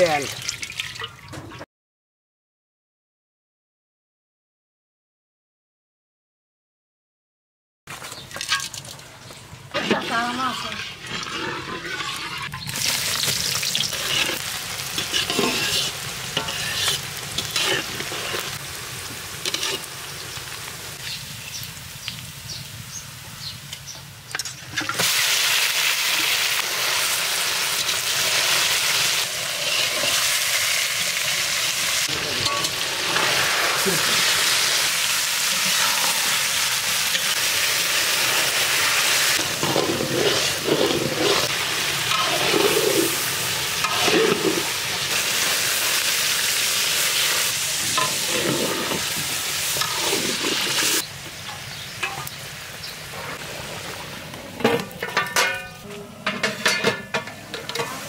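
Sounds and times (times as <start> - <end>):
food sizzling in hot oil: 9.7 - 54.2
spatula scraping a pot: 9.8 - 12.7, 13.8 - 18.6, 19.4 - 19.9, 29.5 - 30.3, 39.4 - 44.8, 48.0 - 51.0.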